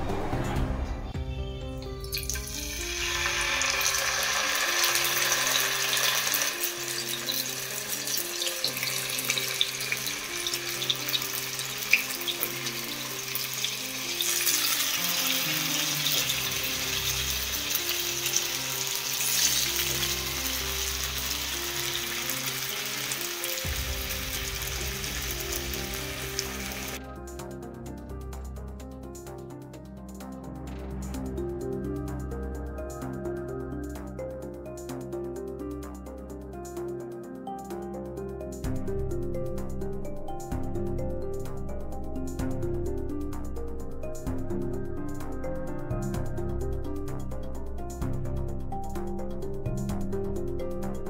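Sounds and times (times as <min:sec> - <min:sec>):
fish sizzling in hot oil: 0:02.1 - 0:27.0.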